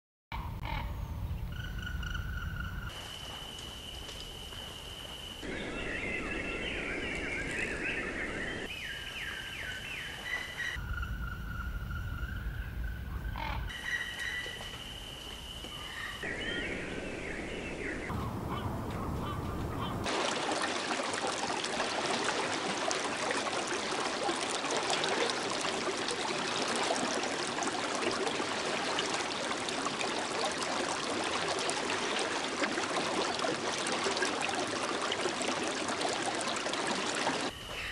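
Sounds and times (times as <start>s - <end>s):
bird calls and chirps: 5.4s - 20.1s
low rumble: 17.9s - 20.1s.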